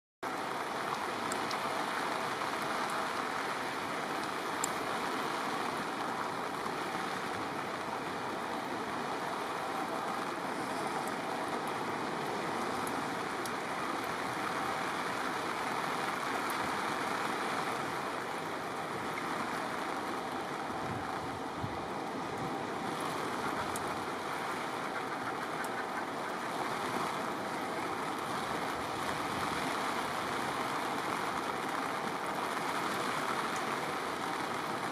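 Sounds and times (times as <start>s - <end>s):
sea: 0.2s - 34.9s
wind: 0.2s - 34.9s
faint ticks: 4.2s - 4.8s, 10.5s - 11.8s, 23.5s - 24.0s.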